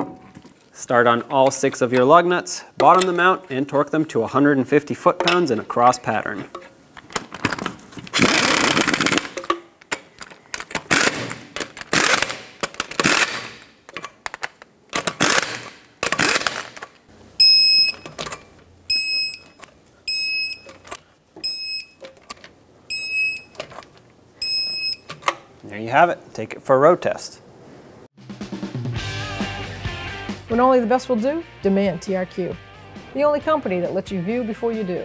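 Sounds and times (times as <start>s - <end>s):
pneumatic impact gun bursts: 8.1s - 9.4s, 10.8s - 13.7s, 15.0s - 16.8s
torque wrench clicking: 8.2s - 16.9s.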